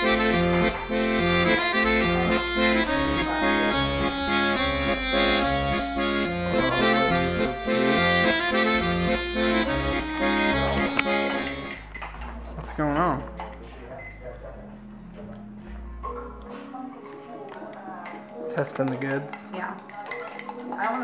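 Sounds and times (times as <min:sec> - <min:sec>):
instrumental background music: 0:00.0 - 0:21.0.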